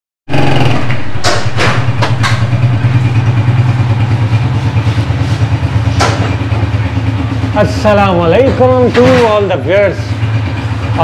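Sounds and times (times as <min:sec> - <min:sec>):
motorcycle engine idling: 0:00.3 - 0:11.0
sharp knocks: 0:00.5 - 0:02.6, 0:05.9 - 0:06.6.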